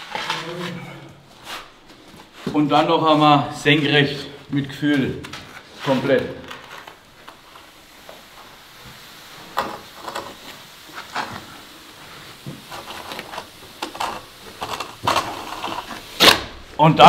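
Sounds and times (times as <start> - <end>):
straightedge scraping wet plaster: 12.8 - 16.5.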